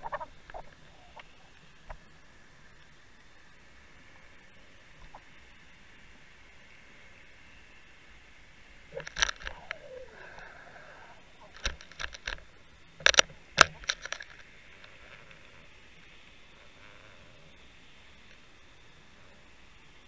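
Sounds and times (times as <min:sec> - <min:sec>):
steady hiss: 0:00.0 - 0:20.0
underwater clicks and knocks: 0:13.0 - 0:14.5.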